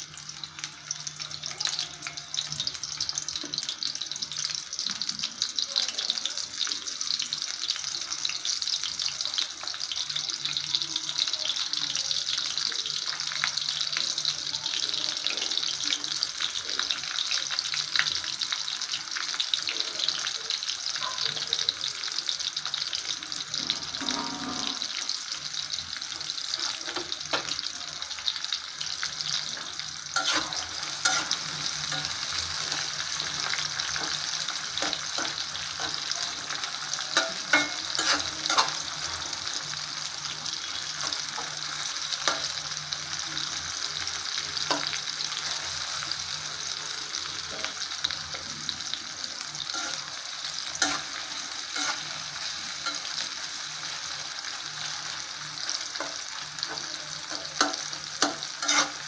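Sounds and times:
onions sizzling in oil: 0:00.0 - 0:59.0
spatula scraping pot: 0:30.2 - 0:32.7, 0:50.8 - 0:53.2, 0:57.6 - 0:59.0.

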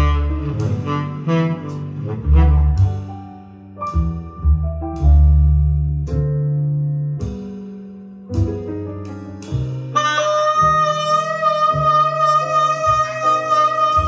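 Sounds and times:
held wind instrument note: 0:00.0 - 0:03.6, 0:09.8 - 0:14.0
plucked bass notes: 0:00.0 - 0:14.0
soft chords: 0:00.0 - 0:14.0.

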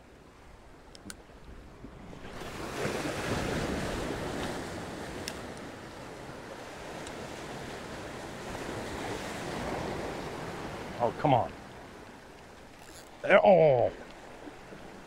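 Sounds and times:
surf breaking over rocks: 0:13.2 - 0:14.2.

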